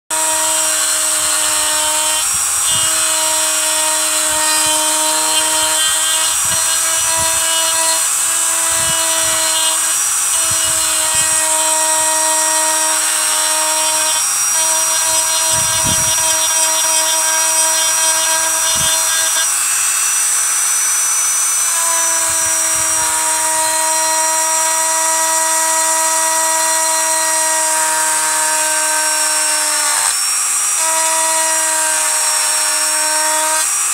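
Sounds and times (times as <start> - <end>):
rotary tool whining: 0.1 - 33.9
bit grinding into bone: 4.3 - 19.6.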